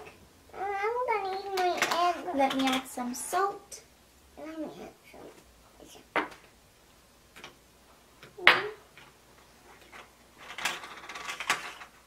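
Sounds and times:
plastic toys knocking: 1.3s - 2.9s, 9.9s - 11.9s.

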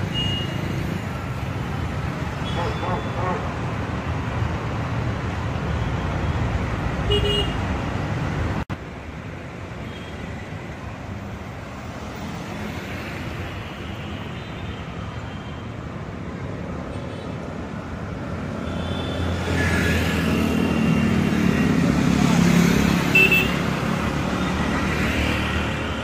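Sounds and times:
road traffic: 0.0s - 26.0s
motorcycles passing: 17.4s - 26.0s.

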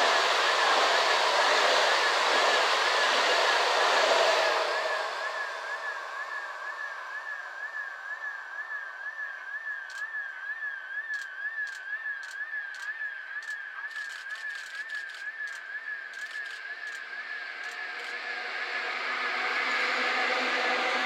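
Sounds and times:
train passing at speed: 0.0s - 8.6s, 16.1s - 21.0s
sharp clicks: 9.9s - 10.1s, 11.1s - 17.0s.

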